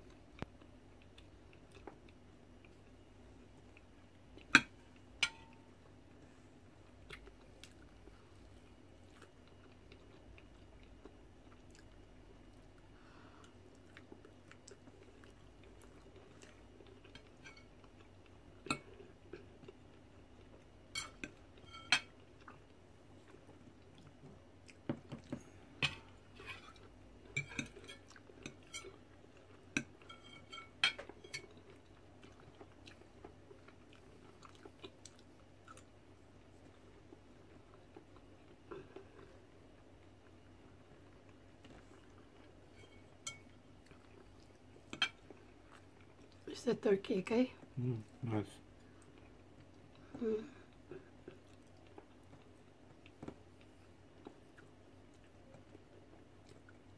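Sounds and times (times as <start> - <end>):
quiet chewing: 0.0 - 46.5, 47.6 - 56.9.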